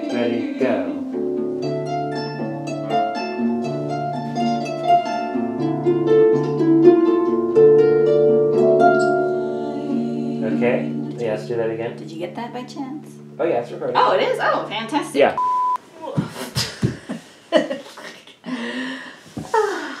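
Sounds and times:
harp melody: 0:00.0 - 0:14.6.

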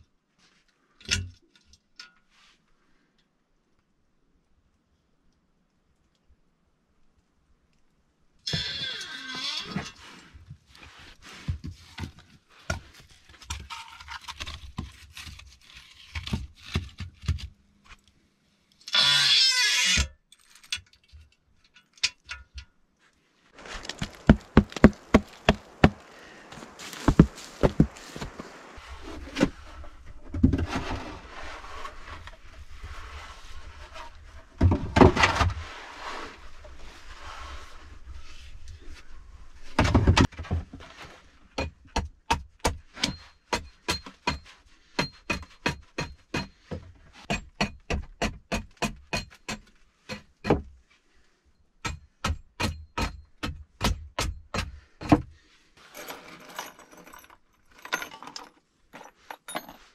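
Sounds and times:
hatchet chopping wood: 0:23.8 - 0:26.1, 0:41.6 - 0:46.6, 0:47.3 - 0:50.7, 0:51.8 - 0:55.3
wooden boards knocking: 0:23.9 - 0:26.0
steel nails clinking: 0:55.8 - 0:59.9.

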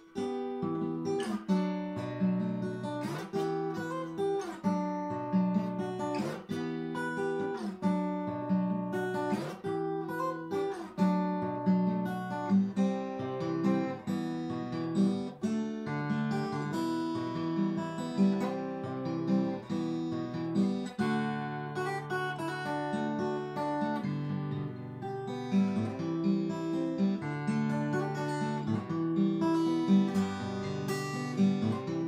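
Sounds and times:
acoustic guitar picked melody: 0:00.0 - 0:32.0.

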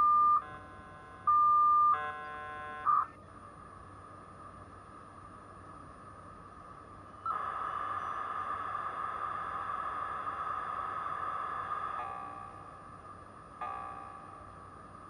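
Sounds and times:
chord of steady tones: 0:00.0 - 0:03.1
loud hissing modem data signal: 0:07.2 - 0:13.0.

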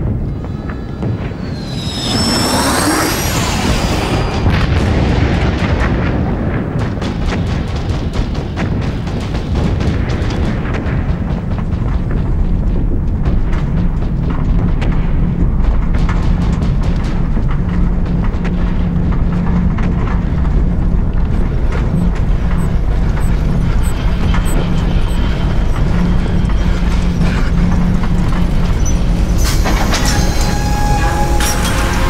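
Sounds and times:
mechanical drone: 0:00.0 - 0:32.0.

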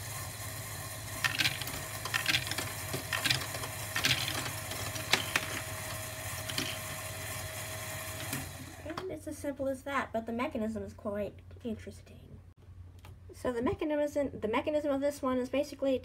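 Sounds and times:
motor and gears whirring: 0:00.0 - 0:09.0
plastic balls clacking: 0:01.2 - 0:05.7.

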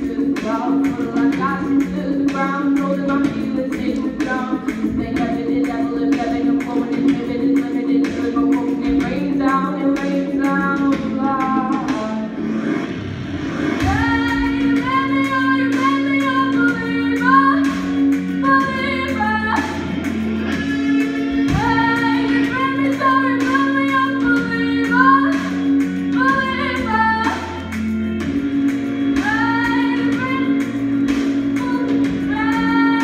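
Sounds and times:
backing track with bass: 0:00.0 - 0:33.0
girl singing into a microphone: 0:13.9 - 0:17.7, 0:21.6 - 0:25.4.

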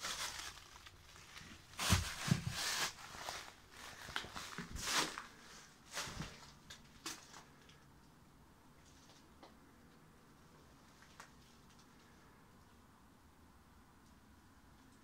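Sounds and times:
footsteps on concrete with rubble: 0:01.4 - 0:05.4.

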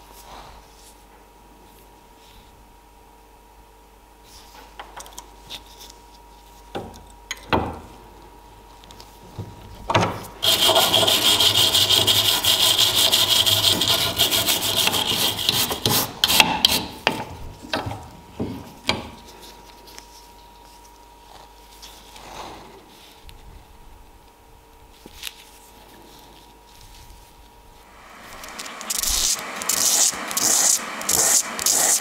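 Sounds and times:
wire brush scrubbing metal: 0:10.4 - 0:16.1, 0:28.1 - 0:32.0.

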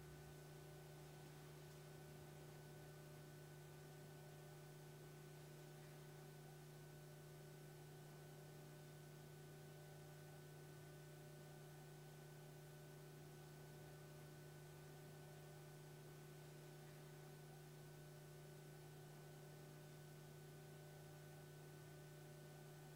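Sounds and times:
faint electrical hum: 0:00.0 - 0:22.9.

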